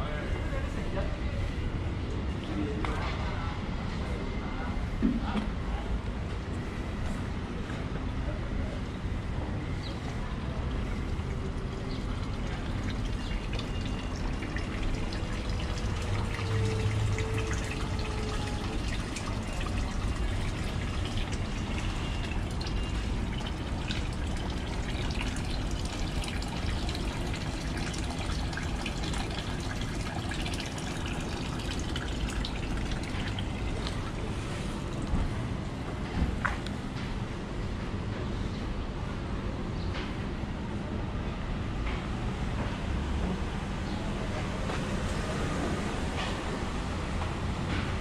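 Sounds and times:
running water trickling: 0:09.6 - 0:36.8
small water drips: 0:09.8 - 0:36.8.

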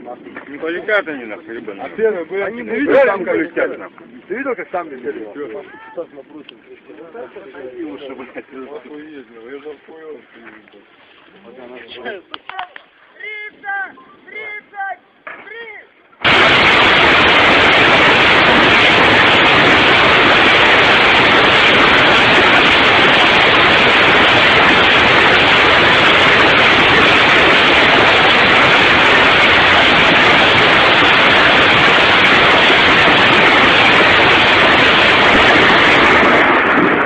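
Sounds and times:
rocket launcher firing: 0:16.2 - 0:37.0.

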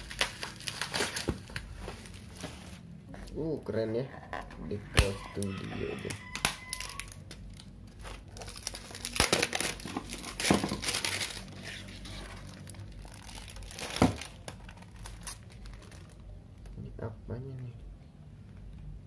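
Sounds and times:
vinyl sheet crinkling and rustling: 0:00.0 - 0:03.0, 0:06.2 - 0:16.9
sharp crackles: 0:06.4 - 0:16.8.

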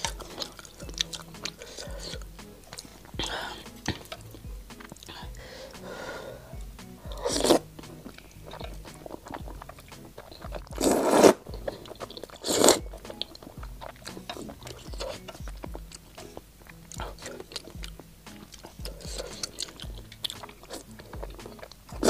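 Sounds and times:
mouth clicks: 0:00.0 - 0:22.0
wet chewing: 0:00.0 - 0:22.0
loud noodle slurps: 0:07.2 - 0:07.7, 0:10.8 - 0:12.8.

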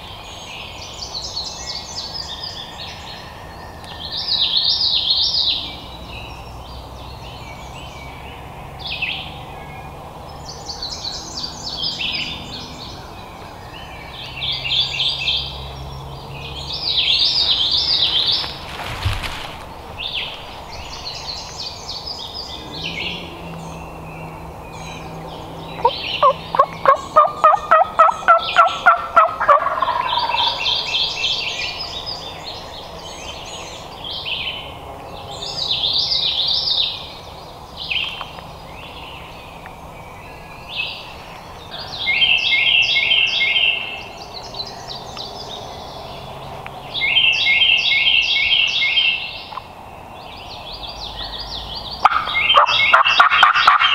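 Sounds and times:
songbirds chirping: 0:00.0 - 0:53.9
turkey gobbling: 0:25.8 - 0:30.9, 0:52.0 - 0:53.9.

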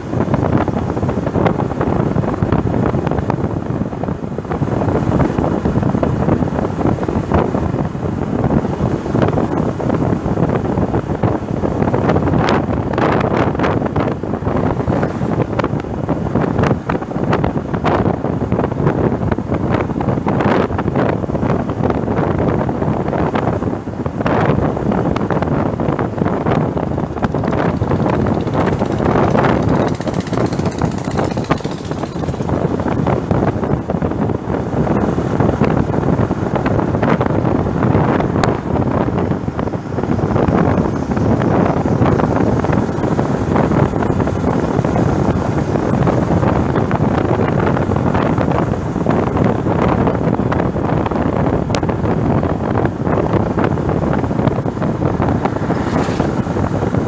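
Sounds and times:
road noise: 0:00.0 - 0:57.0
wind buffeting microphone: 0:00.0 - 0:57.0
motorcycle engine: 0:25.3 - 0:35.0, 0:39.6 - 0:47.0, 0:53.4 - 0:57.0.

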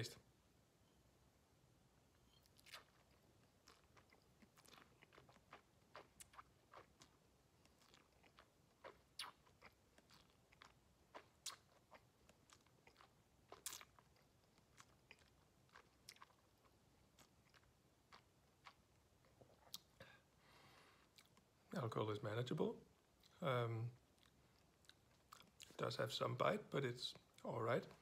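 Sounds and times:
wet lip and tongue clicks: 0:02.3 - 0:14.0.

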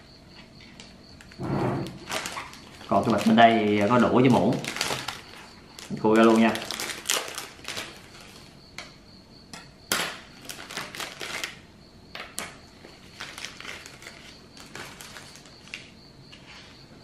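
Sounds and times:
wrappers rustling: 0:00.8 - 0:08.6, 0:10.3 - 0:11.6, 0:12.9 - 0:15.9.

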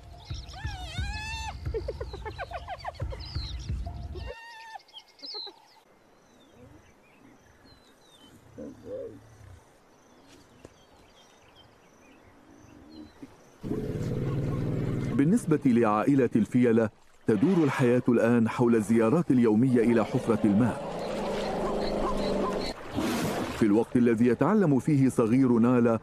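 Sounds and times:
hyenas calling: 0:19.6 - 0:22.8.

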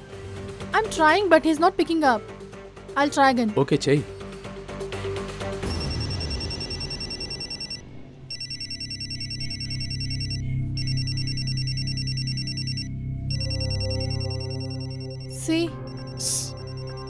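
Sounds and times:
low background music: 0:00.0 - 0:17.0
mobile phone ringtone: 0:05.6 - 0:17.0.

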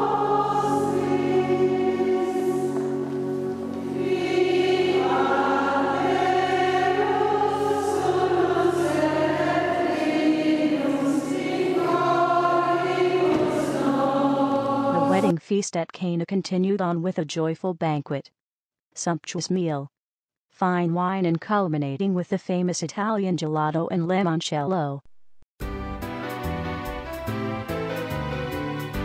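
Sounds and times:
choir singing a hymn: 0:00.0 - 0:15.3.

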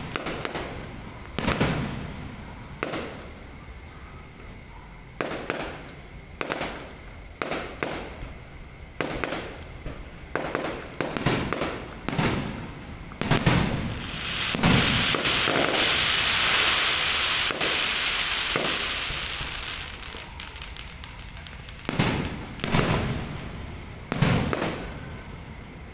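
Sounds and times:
fireworks bangs: 0:00.0 - 0:03.3, 0:05.1 - 0:08.3, 0:09.0 - 0:25.3
steady high hiss: 0:05.2 - 0:25.9.

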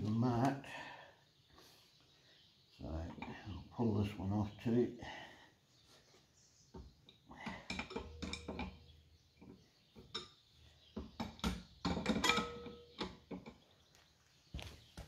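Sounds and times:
metal tools and engine parts knocking: 0:07.4 - 0:13.6.

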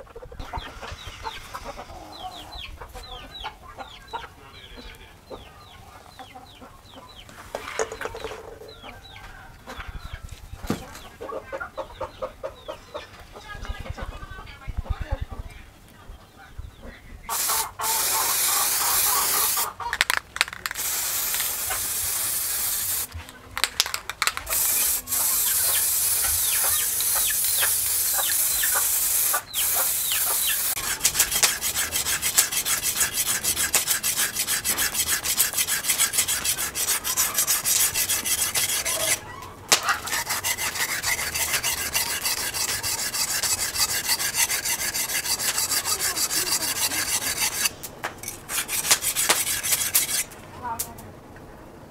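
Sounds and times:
knife scraping on whetstone: 0:23.8 - 0:39.2, 0:39.8 - 0:50.4.

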